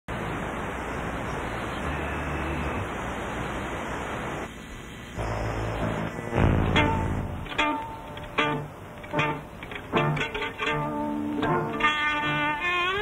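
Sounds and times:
steady hiss: 0.1s - 13.0s
low hum: 5.1s - 13.0s
low drone: 5.2s - 13.0s
plucked strings: 5.9s - 13.0s.

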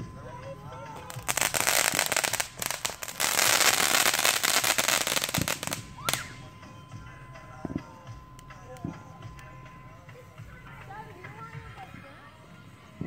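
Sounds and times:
firework sparks crackling: 0.0s - 6.9s, 7.6s - 9.5s
rising whistle: 5.8s - 6.6s.

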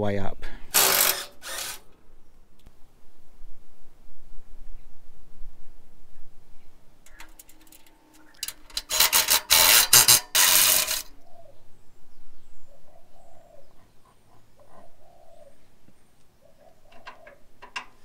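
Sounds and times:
tool rattling on bolt: 7.1s - 11.1s.

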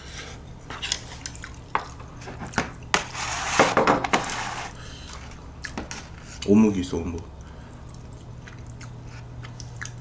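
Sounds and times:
dishes knocking on wooden table: 3.6s - 4.2s.

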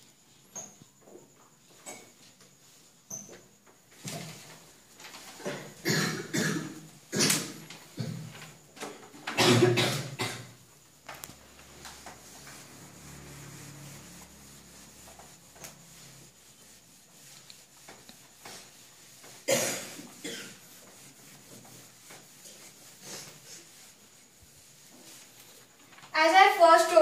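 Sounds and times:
person coughing: 5.8s - 7.4s, 9.4s - 10.5s, 19.5s - 20.6s
faint ticks and rubbing: 10.8s - 27.0s.

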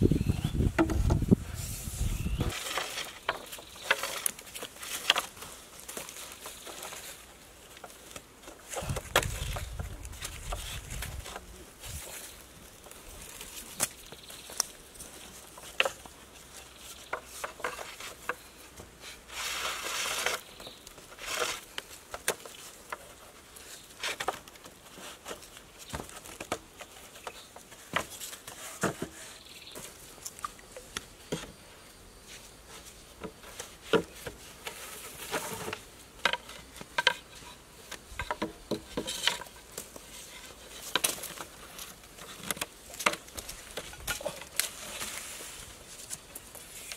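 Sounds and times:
cord scraping rustle: 0.0s - 30.6s, 32.2s - 46.9s
bamboo poles knocking: 0.5s - 1.3s, 2.4s - 5.4s, 17.1s - 18.5s, 33.2s - 39.6s.

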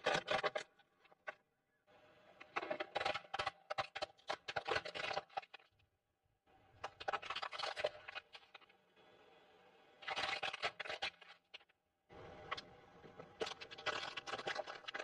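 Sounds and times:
crisp crunching and crackling: 13.4s - 15.0s.

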